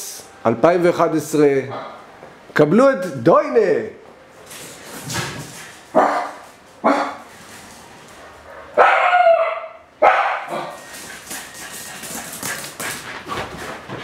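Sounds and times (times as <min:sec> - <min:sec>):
dog barking: 0:05.9 - 0:07.2, 0:08.2 - 0:10.8.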